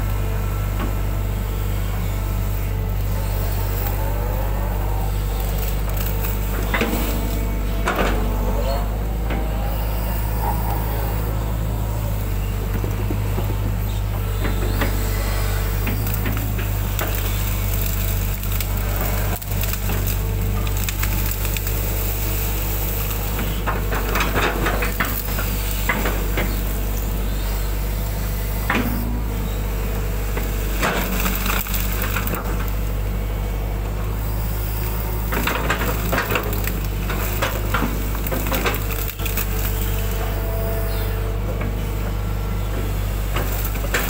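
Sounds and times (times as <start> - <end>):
diesel engine running: 0.0 - 44.0
crackling and snapping vegetation: 14.8 - 29.0, 30.3 - 32.9, 34.8 - 40.4.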